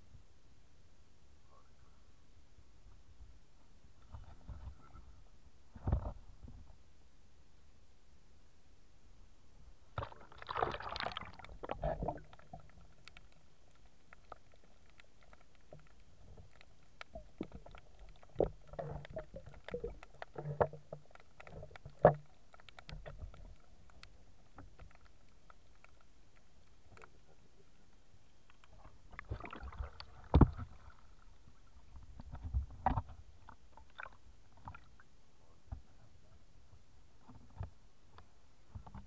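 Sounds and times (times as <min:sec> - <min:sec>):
water splashing: 0:10.0 - 0:23.8, 0:29.0 - 0:32.0
muffled underwater sloshing: 0:28.7 - 0:35.1.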